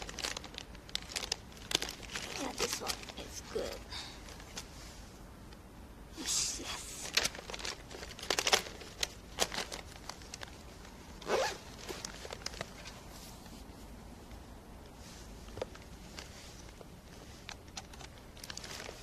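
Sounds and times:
clothing rustling on microphone: 0:07.0 - 0:19.0.

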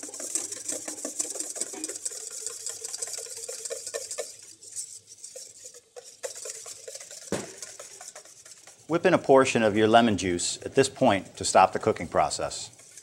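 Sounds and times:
wire whisk clicking in metal bowl: 0:00.0 - 0:04.5, 0:05.2 - 0:09.0.

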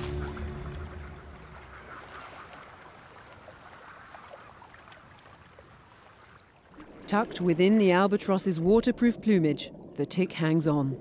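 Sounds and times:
seabirds calling: 0:00.0 - 0:04.7
sea noise: 0:00.0 - 0:11.0.

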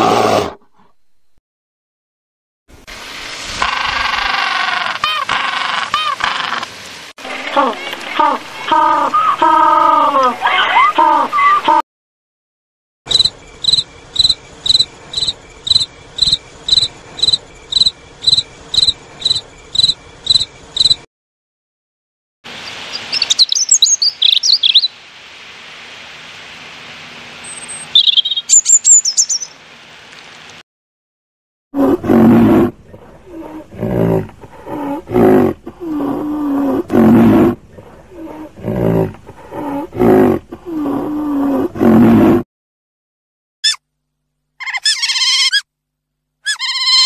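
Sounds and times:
water splashing: 0:02.7 - 0:09.1
robin chirping: 0:13.1 - 0:21.0, 0:22.6 - 0:24.9, 0:27.4 - 0:29.6
rhinoceros calls: 0:31.8 - 0:42.4.

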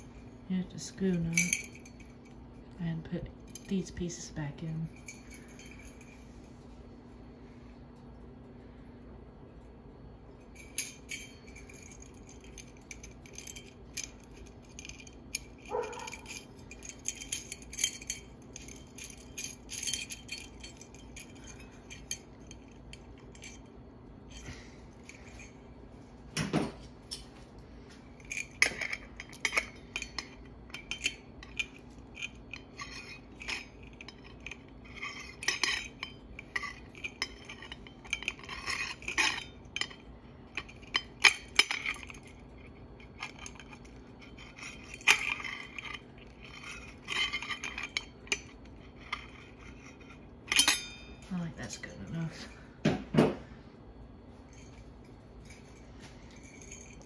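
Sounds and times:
metal cap clinking: 0:28.2 - 0:52.0.

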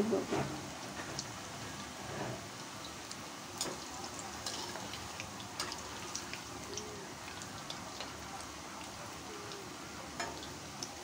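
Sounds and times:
oil sizzling with crackles: 0:00.0 - 0:11.0
metal spoon turning food in oil: 0:00.4 - 0:11.0.

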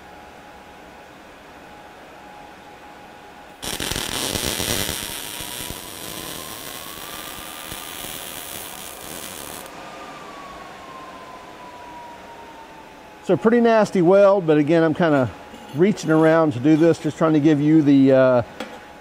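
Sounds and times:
faint steady whine: 0:00.0 - 0:19.0
welding arc crackling hiss: 0:03.6 - 0:09.7.

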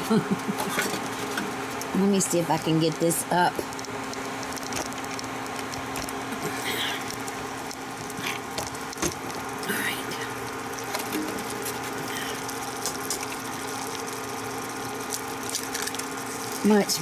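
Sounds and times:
eggs frying in butter: 0:00.0 - 0:17.0
induction cooktop humming: 0:00.0 - 0:17.0
egg cracking clicks and taps: 0:01.0 - 0:09.7, 0:10.4 - 0:16.7.

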